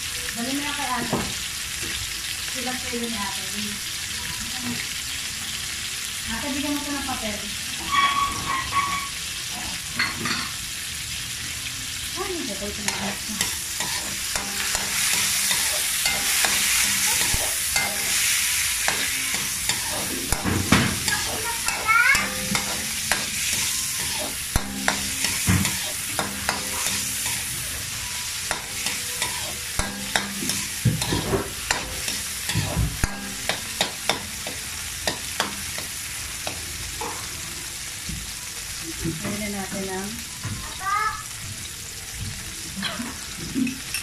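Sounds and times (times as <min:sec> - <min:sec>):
vegetables sizzling in oil: 0:00.0 - 0:44.0
metal spatula scraping a pan: 0:07.7 - 0:10.5, 0:12.7 - 0:36.0.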